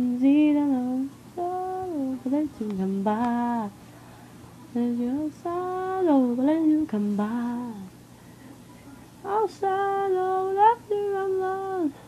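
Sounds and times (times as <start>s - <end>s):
woman singing long held notes: 0.0s - 3.7s, 4.8s - 7.9s, 9.3s - 12.0s.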